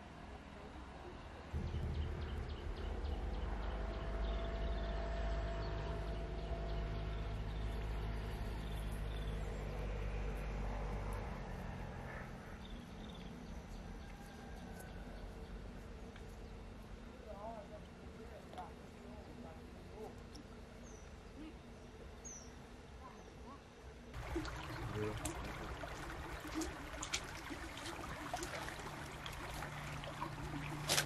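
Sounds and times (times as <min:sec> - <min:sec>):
engine humming: 0:01.6 - 0:14.1, 0:24.2 - 0:31.0
birds chirping: 0:24.2 - 0:31.0.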